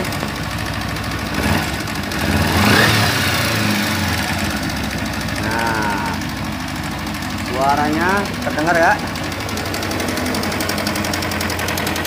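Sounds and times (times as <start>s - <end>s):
motorcycle engine idling: 0.0s - 12.0s
rapid metallic rattle: 0.0s - 12.0s.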